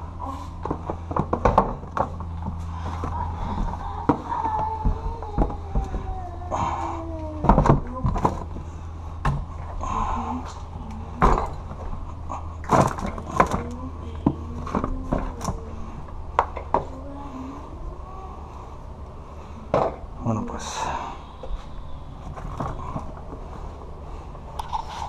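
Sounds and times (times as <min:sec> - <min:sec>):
steady low hum: 0:00.0 - 0:25.0
boxes and bottles clattering in tote: 0:07.4 - 0:08.7, 0:11.2 - 0:15.7, 0:22.2 - 0:23.3.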